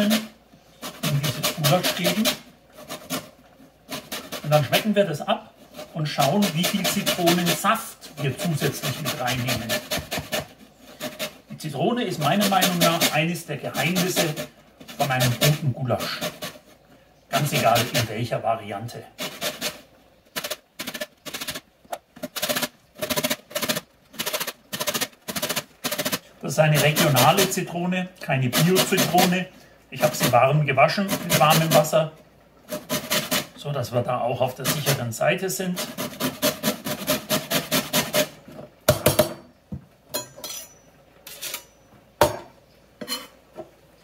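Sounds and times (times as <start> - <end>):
lemon rasping on a grater: 0.0 - 3.3, 3.9 - 16.7, 22.3 - 27.6, 35.7 - 38.3
grater knocking on wooden board: 9.6 - 11.3.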